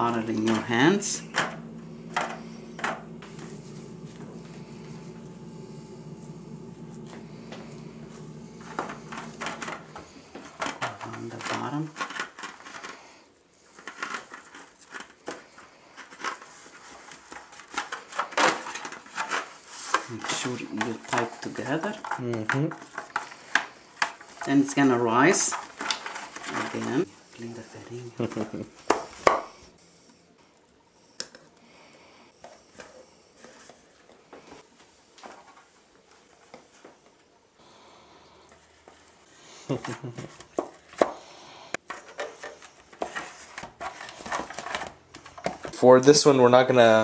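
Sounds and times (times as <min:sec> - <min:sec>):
soft crinkles and rustles: 0:01.6 - 0:24.6.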